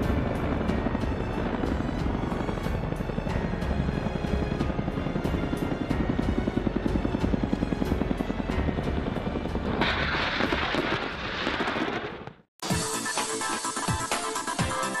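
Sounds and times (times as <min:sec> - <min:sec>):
helicopter rotor beating: 0:00.0 - 0:10.8.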